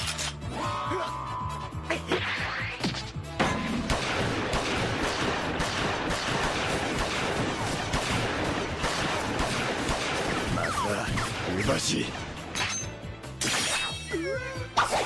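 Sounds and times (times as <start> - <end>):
rapid gunfire barrage: 3.7 - 12.5.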